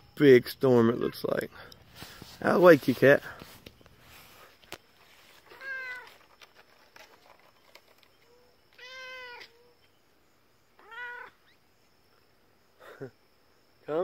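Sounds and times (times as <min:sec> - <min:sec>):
cat meowing: 0:05.5 - 0:06.1, 0:08.8 - 0:09.6, 0:10.8 - 0:11.4.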